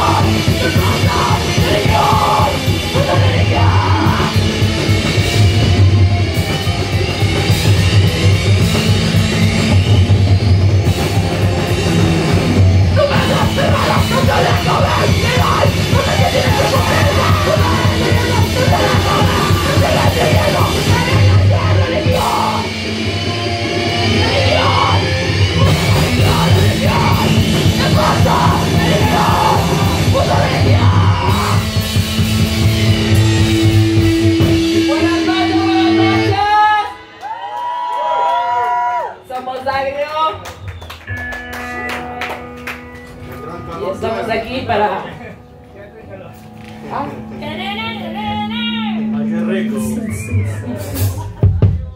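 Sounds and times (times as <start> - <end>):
drum kit: 0.0 - 39.1, 48.2 - 51.9
electric guitar: 0.0 - 39.2, 40.2 - 51.9
woman singing: 12.9 - 22.7.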